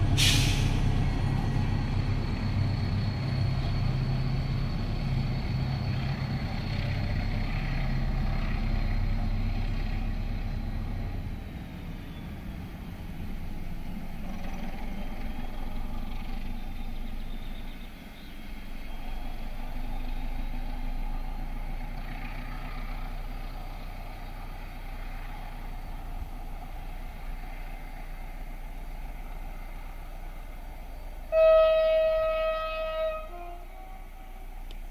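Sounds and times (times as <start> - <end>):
locomotive engine: 0.0 - 34.9
rail noise: 0.0 - 34.9
train horn blast: 31.3 - 34.6.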